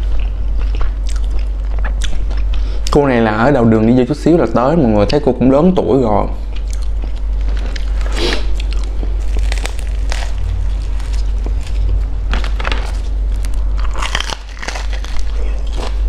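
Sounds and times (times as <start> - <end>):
crunchy bite: 6.6 - 16.0
crisp batter crackling: 7.0 - 16.0.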